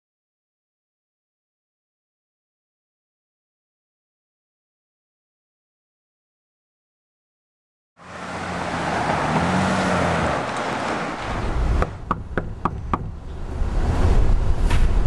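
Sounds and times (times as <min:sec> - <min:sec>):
car driving past: 0:08.0 - 0:12.1
knocks on wooden door: 0:12.1 - 0:13.2.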